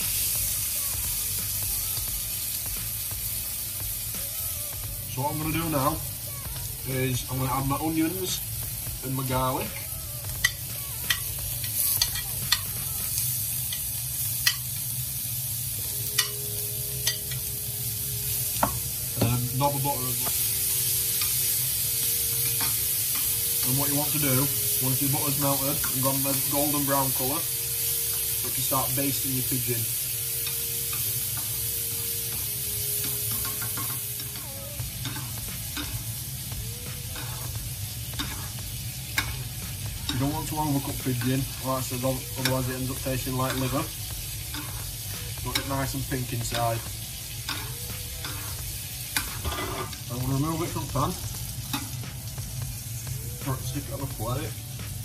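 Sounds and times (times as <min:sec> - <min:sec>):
meat sizzling in oil: 0:00.0 - 0:55.0
metal spoon tapping and scraping: 0:10.4 - 0:12.7
metal spoon scraping pan: 0:37.1 - 0:37.6, 0:38.2 - 0:39.4, 0:44.4 - 0:45.8, 0:46.4 - 0:48.6, 0:49.2 - 0:50.1.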